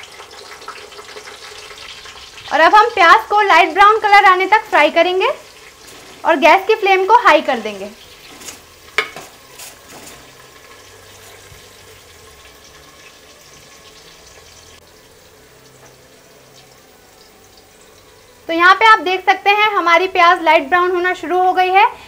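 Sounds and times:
onions sizzling in hot oil: 0.0s - 22.0s
ladle clinking against pot: 8.3s - 10.3s.

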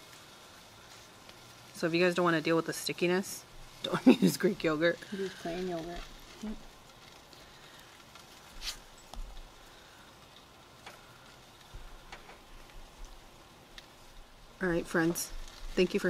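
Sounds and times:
dough handling noise: 8.0s - 9.7s.

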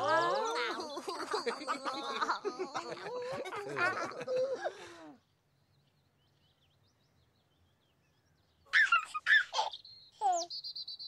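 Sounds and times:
faint bird chirps: 5.1s - 11.0s
baby laughing and babbling: 8.7s - 10.5s.

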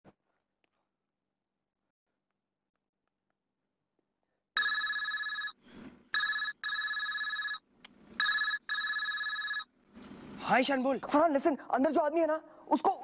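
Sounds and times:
phone electronic ringtone: 4.6s - 5.6s, 6.2s - 7.6s, 8.2s - 9.7s.

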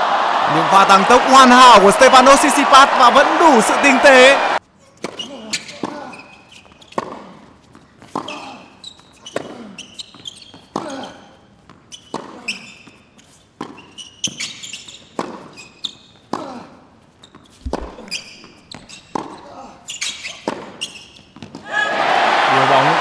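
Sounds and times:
tennis shoes squeaking: 5.0s - 21.6s.

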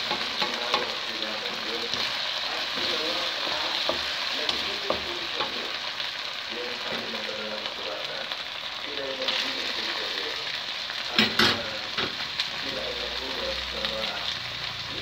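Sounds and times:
meat sizzling in hot oil: 0.0s - 15.0s.

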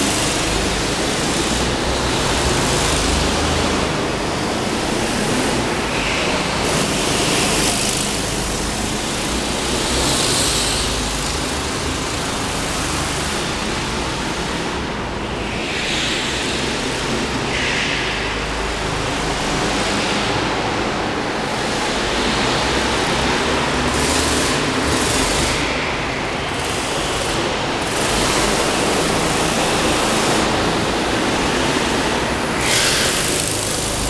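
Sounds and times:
go-kart engines droning: 0.0s - 34.0s.

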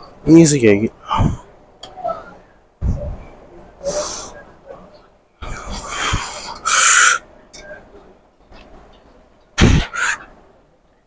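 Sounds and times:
man breathing hard: 5.4s - 7.3s.

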